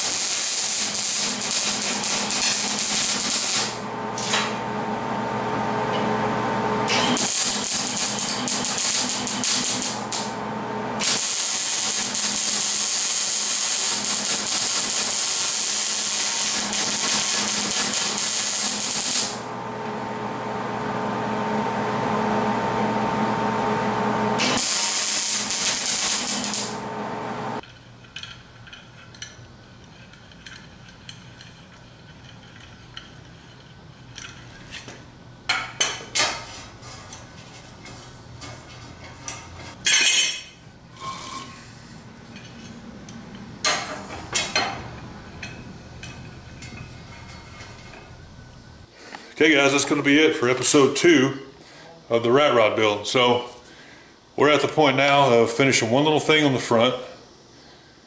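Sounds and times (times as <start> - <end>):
welding arc crackling and hissing: 0.0 - 3.9, 6.9 - 10.4, 11.0 - 19.5, 24.4 - 27.6
welder steady hum: 0.0 - 38.6.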